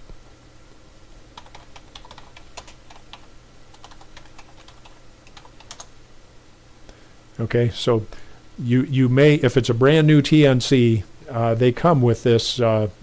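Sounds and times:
typing on computer keyboard: 1.4 - 5.9.

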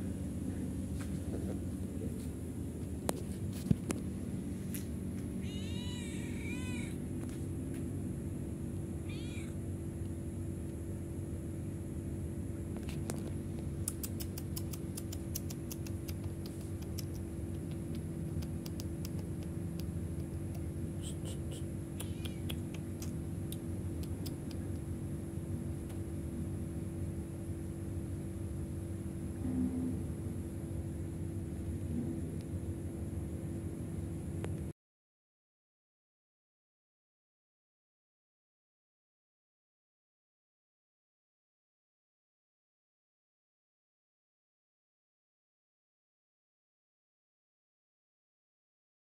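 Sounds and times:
steady low hum: 0.0 - 34.8
cat meowing: 5.4 - 7.0, 9.0 - 9.6, 21.9 - 22.7
sharp clicks: 13.8 - 20.7, 21.9 - 24.9.

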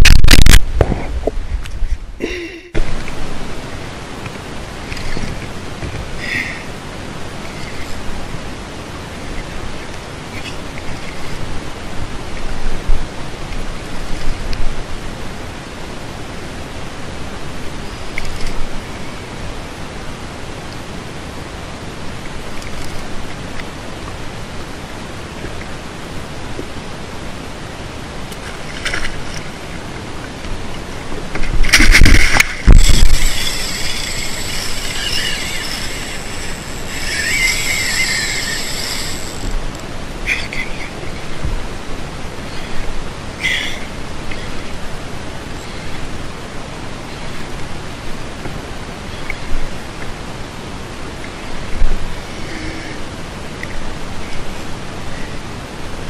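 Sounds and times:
loud thumps and rumbles: 0.0 - 1.4, 31.4 - 33.7
rushing wind noise: 0.0 - 56.0
fishing reel whirring: 31.7 - 39.6.

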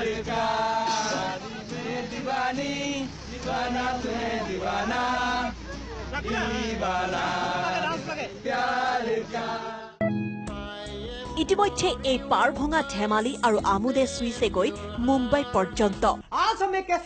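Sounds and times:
crowd of men chanting: 0.0 - 10.0.

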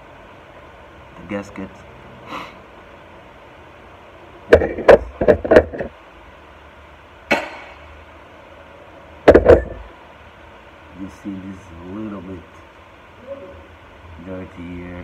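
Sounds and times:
metal parts knocking and clattering: 9.3 - 9.8.

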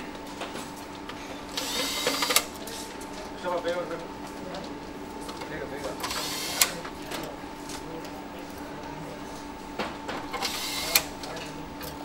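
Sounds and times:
electric screwdriver whirring: 1.6 - 2.5, 10.4 - 11.0.

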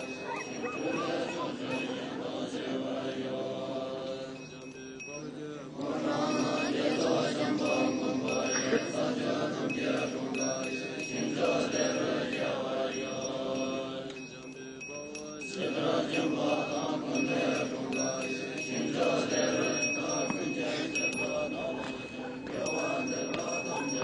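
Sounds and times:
low droning chant: 0.0 - 24.0
high ringing tone: 16.3 - 24.0.

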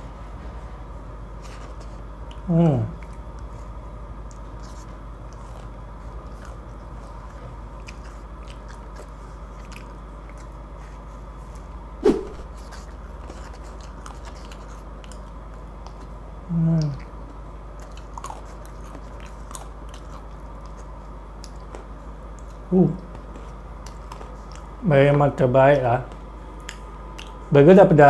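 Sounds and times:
steady low hum: 0.0 - 28.0
quiet chewing: 0.4 - 27.5
sharp sudden sound: 12.0 - 12.4
person humming: 16.5 - 17.0.

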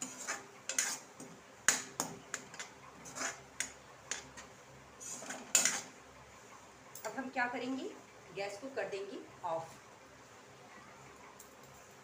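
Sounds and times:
metal spoon scraping metal pan: 0.0 - 1.8, 2.4 - 6.0.

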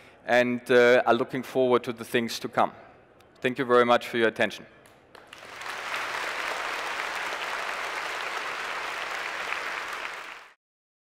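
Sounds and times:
audience applauding: 5.2 - 10.6.

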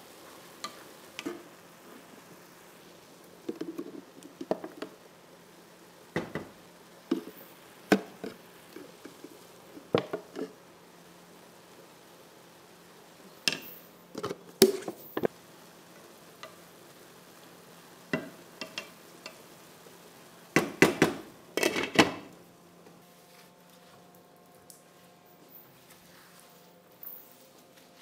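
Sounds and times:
pots and dishes clinking: 20.6 - 22.2.

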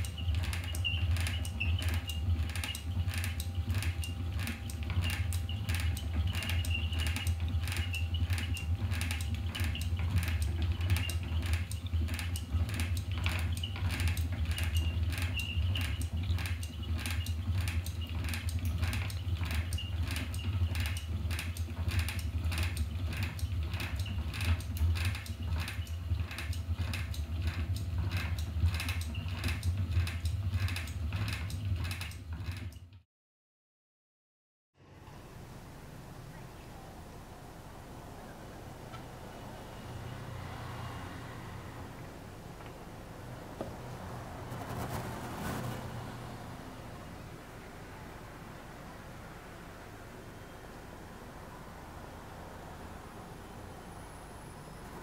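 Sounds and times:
spinning wheel clicking: 0.0 - 32.8.

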